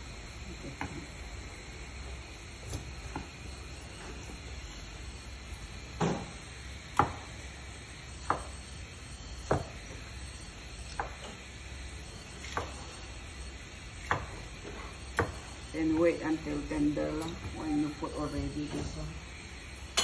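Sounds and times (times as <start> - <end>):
knife chopping on wooden board: 11.0 - 11.3, 15.2 - 15.4.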